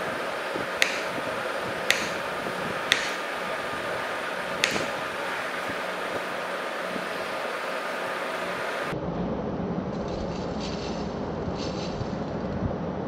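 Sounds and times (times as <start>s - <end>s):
steady hiss: 0.0s - 9.0s
low rumble: 8.4s - 13.0s.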